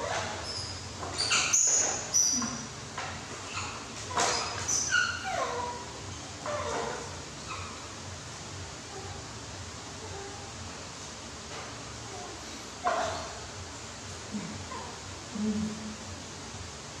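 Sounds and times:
baby monkey squeaking: 0.0 - 2.6, 3.4 - 7.9.

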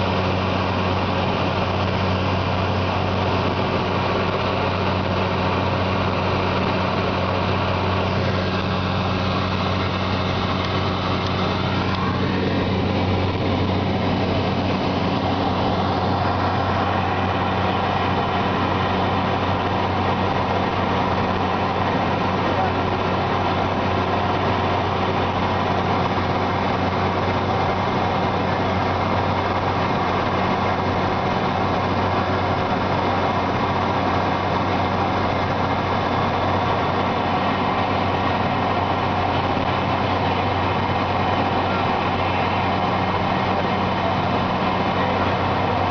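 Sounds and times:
aircraft engines droning in cabin: 0.0 - 45.9.

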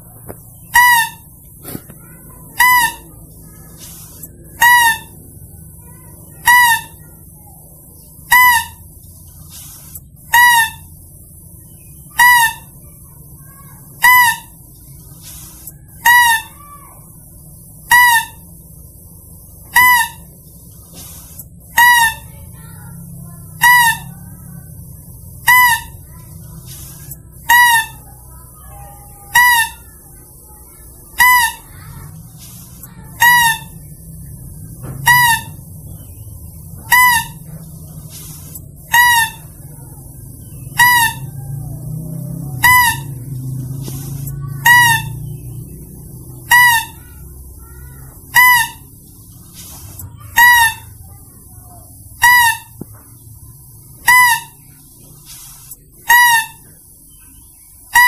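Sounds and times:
high-pitched wavering lure call: 13.5 - 14.6, 15.4 - 17.0, 17.8 - 18.5, 19.7 - 20.4, 21.0 - 24.4, 25.4 - 26.2, 26.8 - 29.9, 31.1 - 32.1, 32.9 - 34.0, 35.1 - 39.7, 40.4 - 41.6, 42.3 - 49.0, 49.9 - 51.2, 52.1 - 52.8, 54.0 - 54.6, 55.6 - 56.8.

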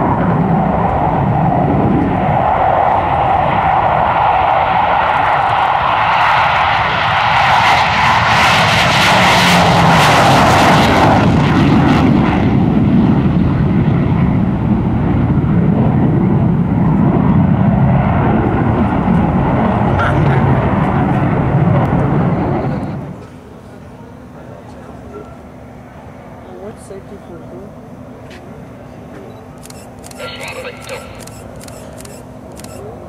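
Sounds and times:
fighter jet flying overhead: 0.0 - 24.3
jet engines rushing hiss: 0.0 - 33.0.

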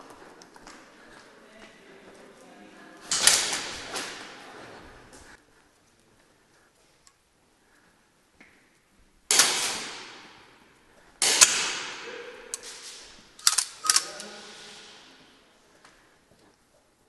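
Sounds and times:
sharp bangs echoing in a hall: 3.0 - 5.1, 9.3 - 15.6.

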